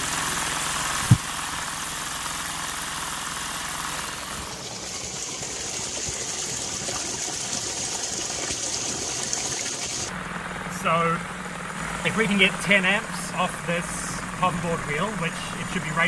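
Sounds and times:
generator humming: 0.0s - 16.0s
sharp thump: 1.0s - 1.3s
water gushing and splashing: 4.0s - 10.1s.

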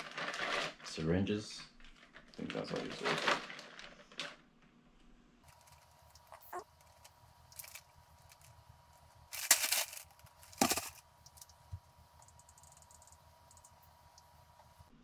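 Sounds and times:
plastic packaging rustling: 0.0s - 1.2s, 1.8s - 4.4s, 5.4s - 11.5s.

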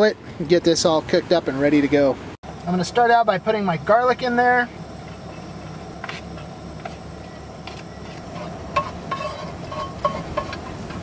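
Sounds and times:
low hum: 2.5s - 11.0s
garlic sizzling in oil: 7.5s - 11.0s
spatula scraping pan: 7.7s - 11.0s.

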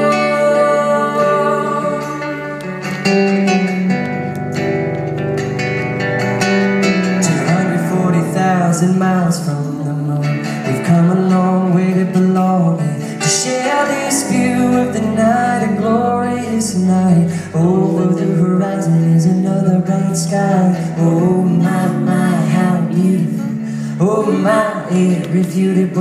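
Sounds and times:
people singing: 0.0s - 3.1s, 7.2s - 26.0s
cello: 0.0s - 3.8s
acoustic guitar: 0.0s - 26.0s.

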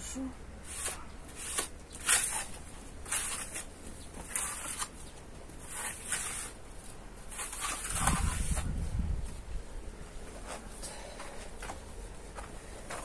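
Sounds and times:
tool scraping plaster on wall: 0.6s - 4.9s, 5.6s - 6.6s, 7.3s - 8.7s.

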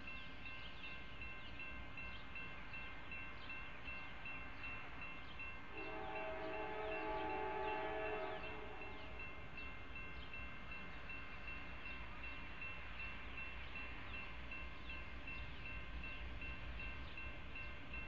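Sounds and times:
crossing warning bell ringing: 0.0s - 18.0s
train horn: 5.7s - 9.3s.

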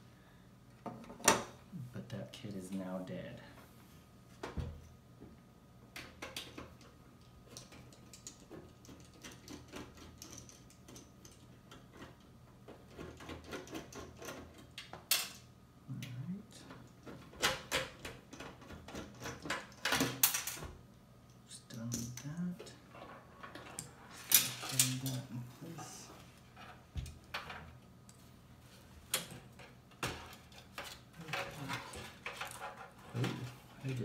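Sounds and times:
clicks knocks and scrapes of parts: 6.0s - 15.4s, 16.0s - 20.8s, 21.7s - 34.0s.

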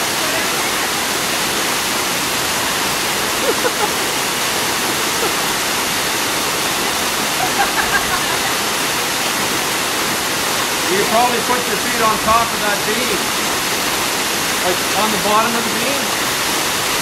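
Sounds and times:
waterfall rushing: 0.0s - 17.0s
faint voices and laughter: 3.2s - 5.9s, 6.9s - 9.3s.

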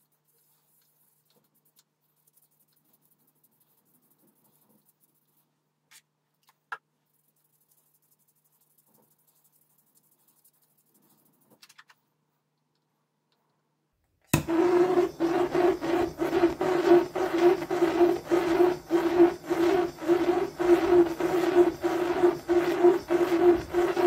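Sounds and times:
blowtorch rushing and humming: 14.4s - 24.0s.

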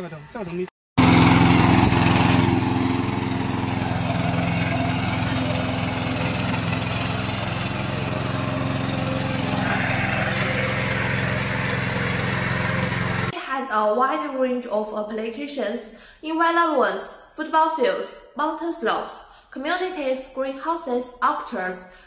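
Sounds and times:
mower engine running: 1.0s - 13.3s.

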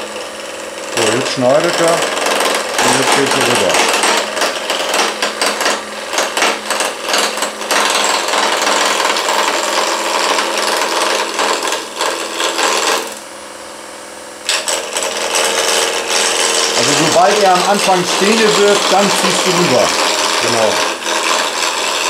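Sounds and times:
turning tool cutting wood: 0.0s - 13.3s, 14.5s - 22.0s
wood lathe motor hum: 0.0s - 13.4s, 14.4s - 22.0s.

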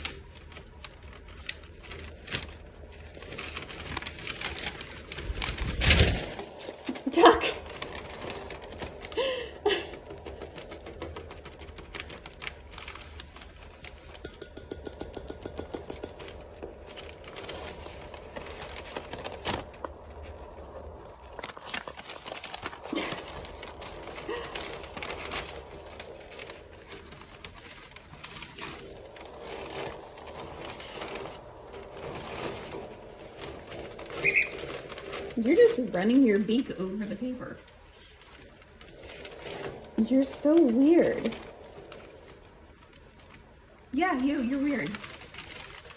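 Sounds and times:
birds rustling paper: 0.0s - 45.9s
beaks scratching paper: 9.9s - 43.2s, 44.0s - 45.9s.

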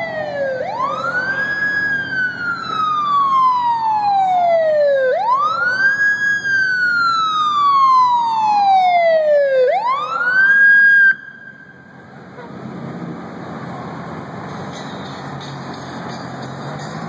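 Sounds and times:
fire engine siren wailing: 0.0s - 12.7s.

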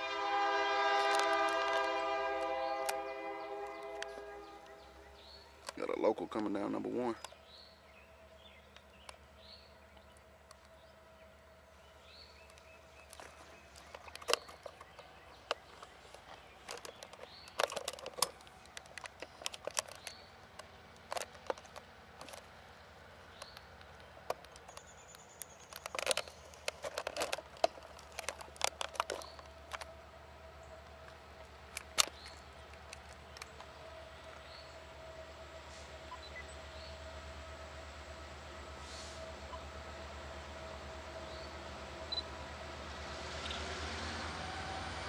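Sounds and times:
bird calls: 0.9s - 29.9s.

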